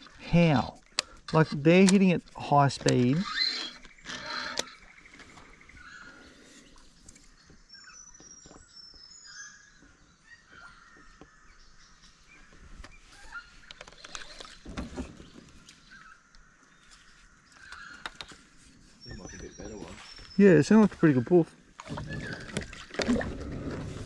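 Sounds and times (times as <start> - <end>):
small birds chirping: 0.0 - 23.0
kayak knocks and water: 21.8 - 24.0.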